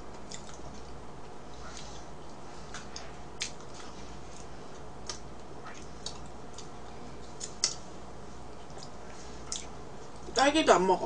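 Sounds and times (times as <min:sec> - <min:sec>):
low steady hum: 0:00.0 - 0:11.0
eating clicks and smacks: 0:00.1 - 0:01.0, 0:02.2 - 0:07.9, 0:08.6 - 0:10.3.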